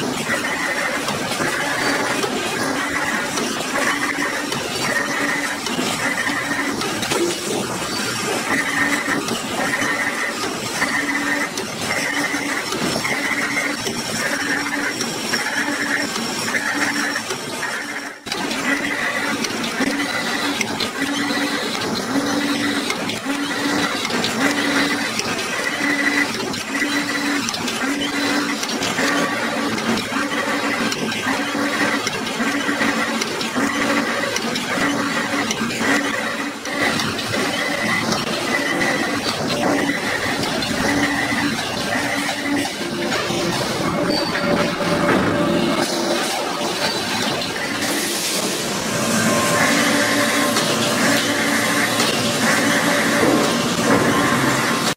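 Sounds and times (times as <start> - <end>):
constant mechanical noise: 0.0 - 54.9.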